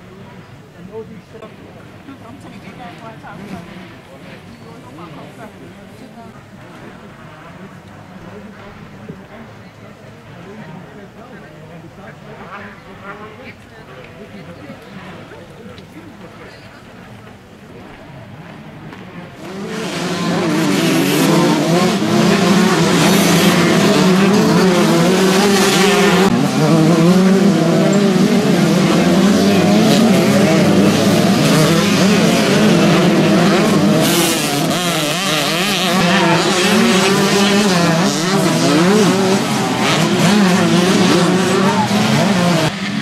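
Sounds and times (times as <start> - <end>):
motocross bike engines revving: 18.1 - 43.0.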